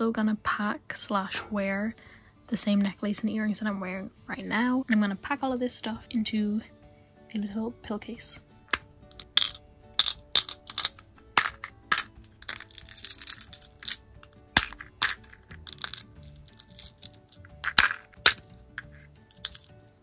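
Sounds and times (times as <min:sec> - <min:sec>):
soft background music: 0:00.0 - 0:20.0
jewelry clicking and clinking: 0:08.7 - 0:20.0.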